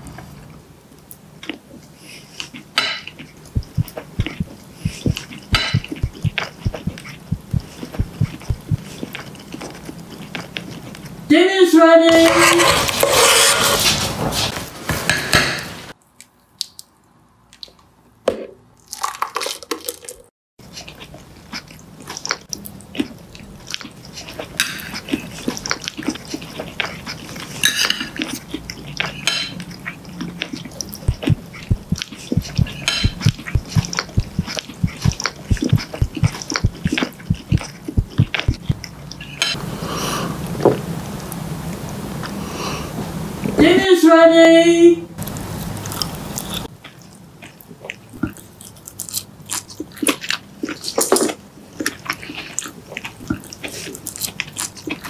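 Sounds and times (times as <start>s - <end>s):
cutlery clicks and scrapes: 27.6s - 28.2s, 29.0s - 29.7s, 32.5s - 35.4s
metal spoon scraping a pot: 32.6s - 34.0s.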